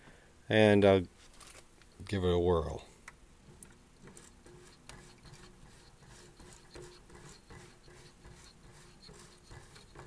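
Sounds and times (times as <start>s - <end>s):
dial string rubbing with light ticks: 4.0s - 10.0s.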